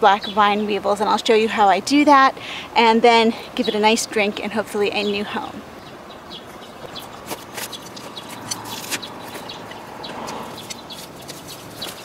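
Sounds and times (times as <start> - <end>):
trowel digging dry soil: 6.5 - 12.0.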